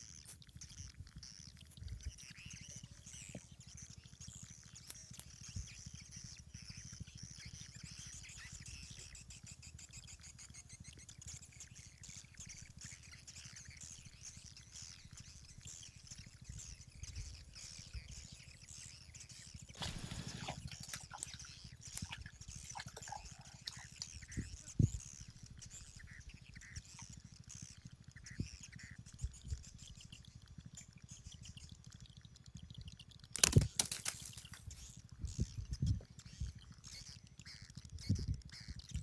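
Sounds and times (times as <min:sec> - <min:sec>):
birds chirping: 0:10.5 - 0:28.9.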